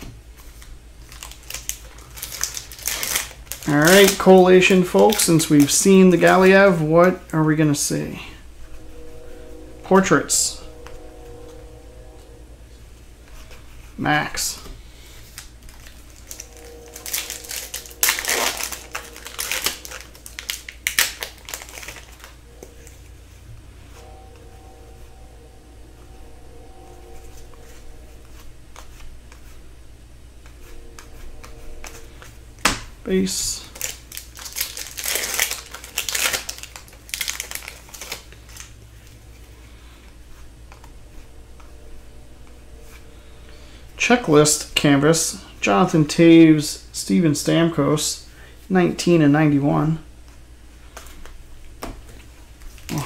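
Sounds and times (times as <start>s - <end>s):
foil wrapper tearing and crinkling: 1.1s - 4.2s, 33.8s - 38.7s.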